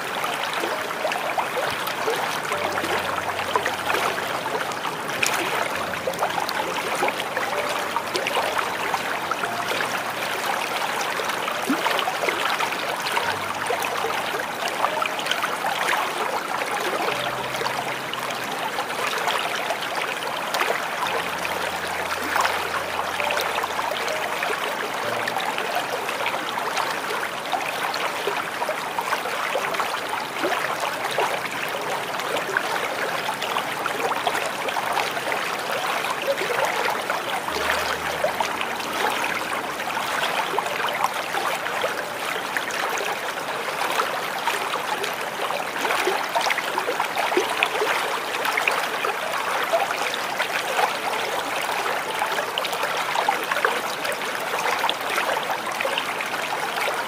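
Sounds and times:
small waterfall splashing: 0.0 - 57.0.

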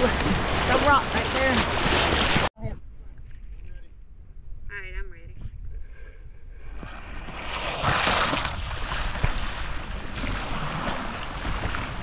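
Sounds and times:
river water rushing and splashing: 0.0 - 2.5.

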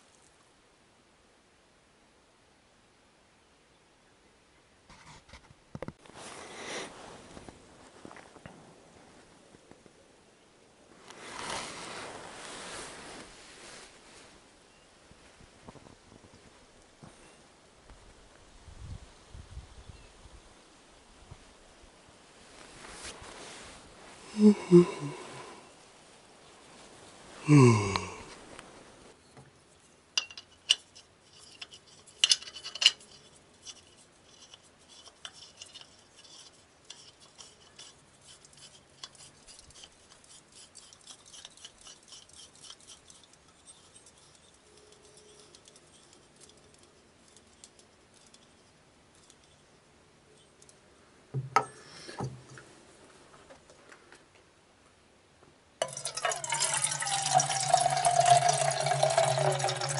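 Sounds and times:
camp cookware clinking: 30.2 - 33.8, 55.8 - 59.9.

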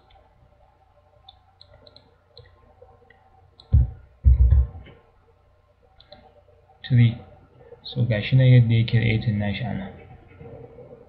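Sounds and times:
computer mouse clicks: 1.2 - 3.9, 6.0 - 6.3
low thumps: 3.7 - 5.0.

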